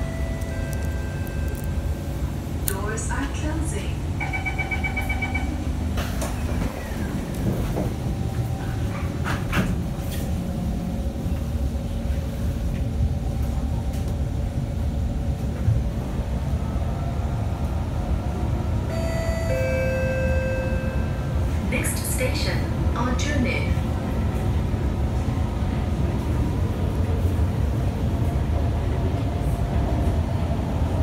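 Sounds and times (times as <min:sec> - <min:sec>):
train rumble: 0:00.0 - 0:31.0.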